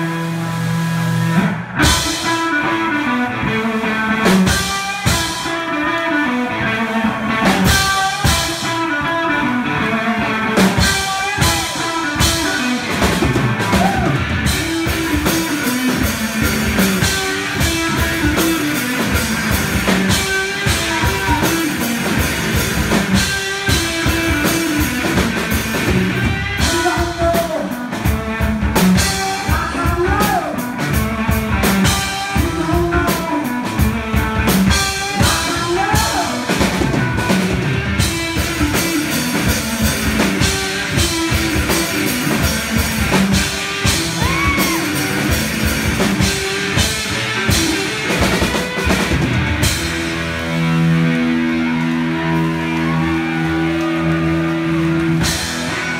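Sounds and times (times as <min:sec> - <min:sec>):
drum kit: 0:00.0 - 0:55.9
electric guitar: 0:00.0 - 0:55.9.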